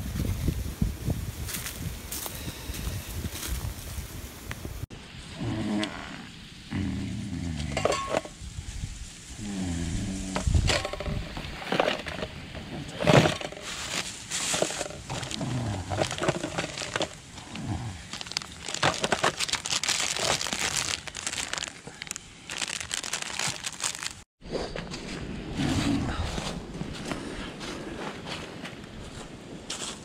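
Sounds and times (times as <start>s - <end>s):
plastic packaging crinkling: 13.8s - 17.2s, 18.1s - 24.3s
gear clattering in plastic basket: 18.1s - 21.7s.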